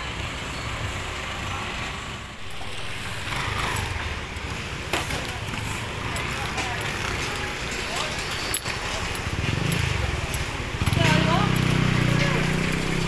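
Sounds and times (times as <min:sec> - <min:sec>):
motorcycle and vehicle engines: 0:00.0 - 0:13.0.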